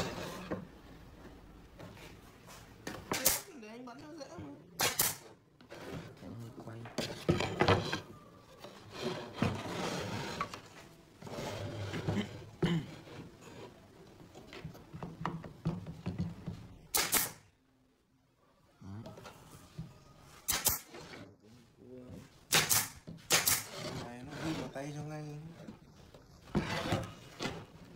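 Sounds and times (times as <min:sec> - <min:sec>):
wood strips sliding on workbench: 0:00.0 - 0:00.7, 0:07.0 - 0:12.3, 0:26.5 - 0:27.8
pneumatic nail gun shots: 0:03.1 - 0:03.5, 0:04.8 - 0:05.3, 0:16.9 - 0:17.5, 0:20.5 - 0:20.9, 0:22.5 - 0:23.8.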